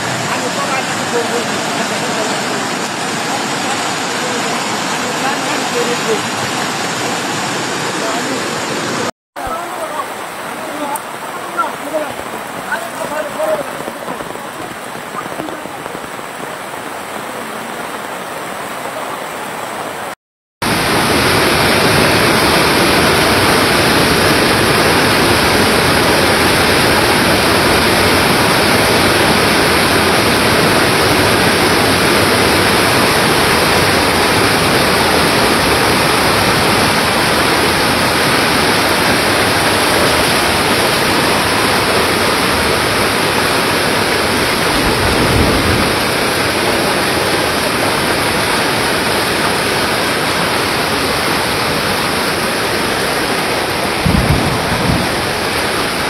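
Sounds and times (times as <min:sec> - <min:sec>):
floodwater rushing: 0:00.0 - 0:56.0
rain: 0:00.0 - 0:56.0.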